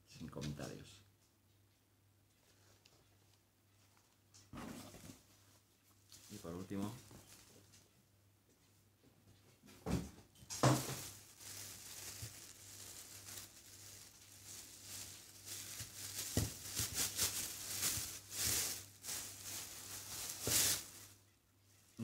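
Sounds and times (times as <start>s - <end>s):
wrapping rustling and crinkling: 2.3s - 8.0s, 10.4s - 22.0s.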